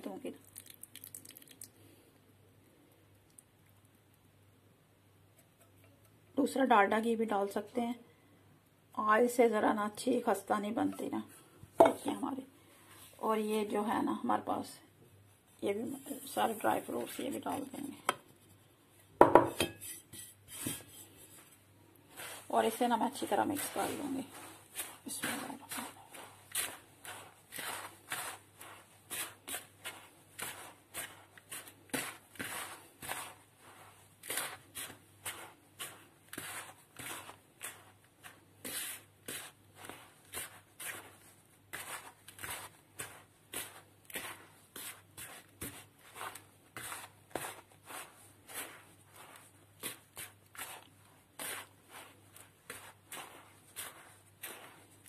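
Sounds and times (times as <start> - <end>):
fingers rubbing flour in bowl: 19.8 - 55.0.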